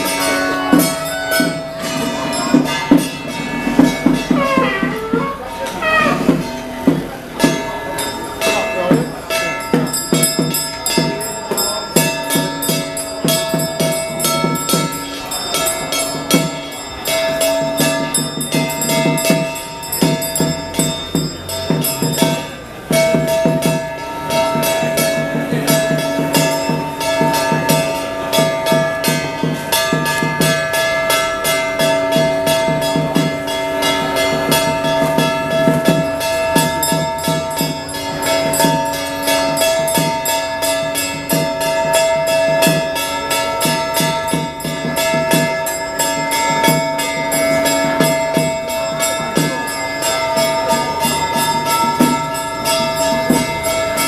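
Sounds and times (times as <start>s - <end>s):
high wind instrument notes: 0.0s - 9.6s
cymbal strokes: 0.0s - 54.0s
drum strokes: 0.0s - 54.0s
gong strokes: 0.0s - 54.0s.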